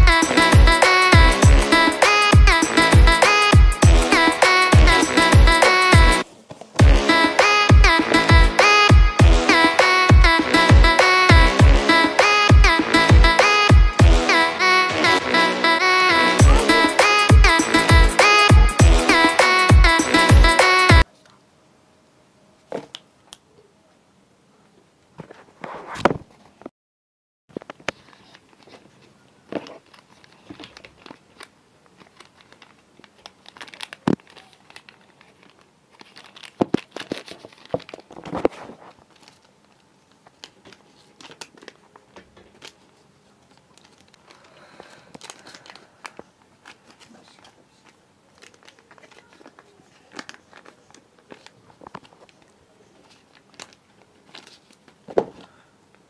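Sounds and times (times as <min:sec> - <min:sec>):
paper rustling and crinkling: 0:27.5 - 0:55.6.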